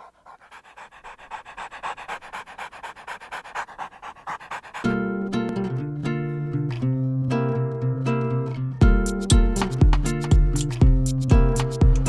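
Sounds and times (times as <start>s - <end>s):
dog breathing in quick puffs: 0.0s - 5.0s
plucked guitar music: 4.8s - 12.0s.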